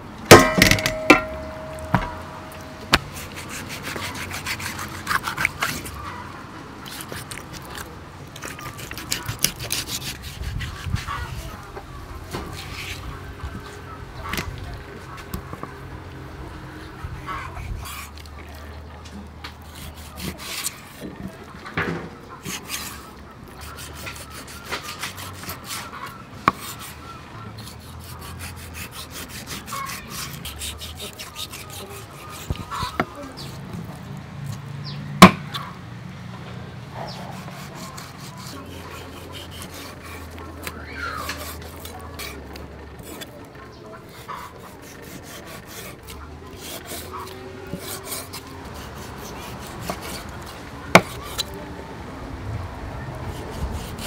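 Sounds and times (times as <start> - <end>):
knife slicing meat on wood: 0.3 - 6.1, 6.8 - 11.6, 12.3 - 13.7, 19.5 - 21.4, 22.4 - 27.0, 27.6 - 34.6, 35.2 - 35.7, 37.0 - 43.4, 44.0 - 51.6, 53.3 - 54.0.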